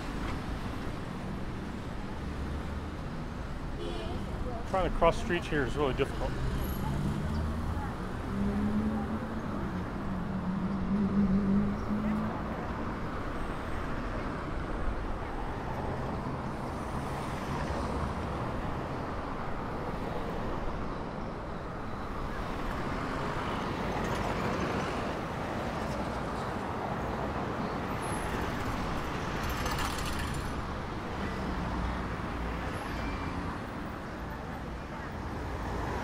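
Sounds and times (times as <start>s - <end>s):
cars driving past: 4.3s - 21.0s.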